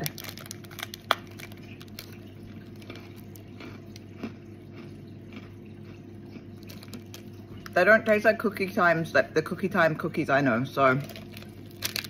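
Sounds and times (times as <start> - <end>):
cookie crunching while chewing: 0.0 - 7.8, 11.0 - 12.0.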